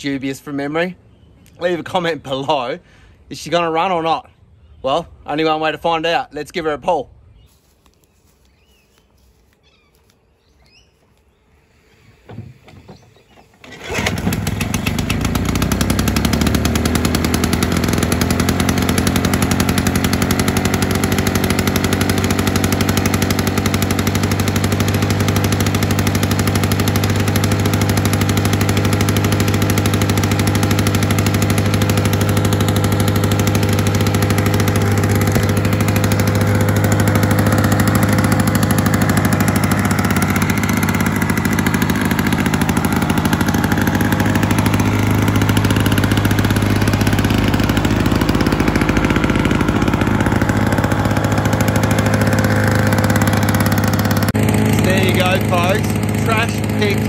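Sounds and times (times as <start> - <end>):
lawnmower engine running: 11.7 - 57.0
lawnmower pull start: 12.0 - 57.0.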